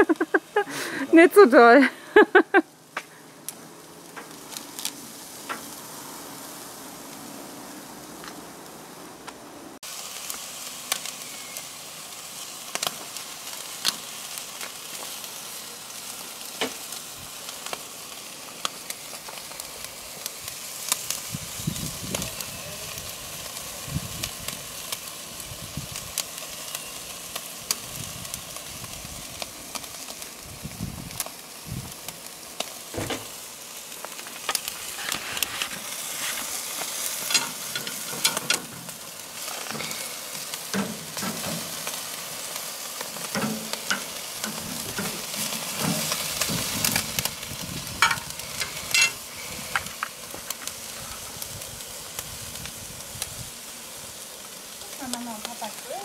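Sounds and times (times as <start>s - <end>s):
meat sizzling on a grill: 0.0s - 56.0s
fat popping and crackling: 25.7s - 53.3s.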